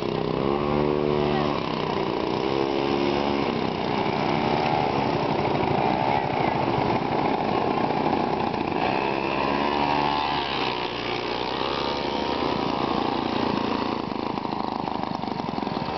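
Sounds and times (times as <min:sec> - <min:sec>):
go-kart engine passing: 0:00.0 - 0:15.9.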